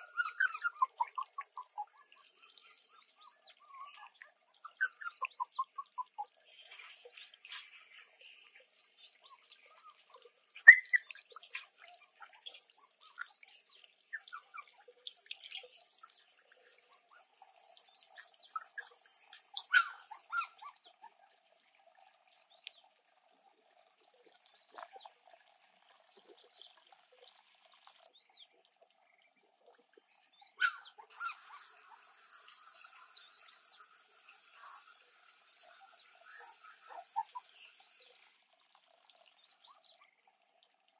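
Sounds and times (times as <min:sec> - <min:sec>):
birds chirping: 0:00.0 - 0:21.3
faint trickle of water: 0:00.0 - 0:40.9.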